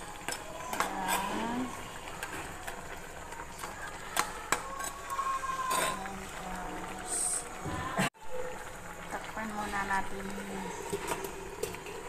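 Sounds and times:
metal spatula scraping a pot: 0.3s - 2.2s, 4.0s - 6.2s.

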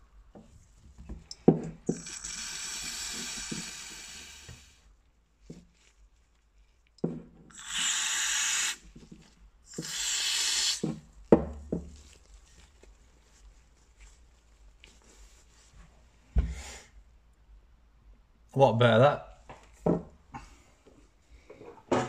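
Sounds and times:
aerosol spray bursts: 2.0s - 4.8s, 7.5s - 8.8s, 9.7s - 11.0s.

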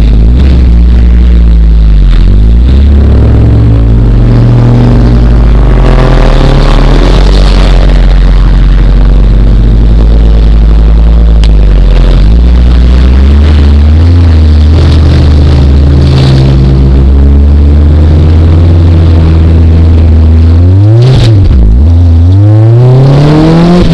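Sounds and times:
race car engine idling: 0.0s - 22.4s.

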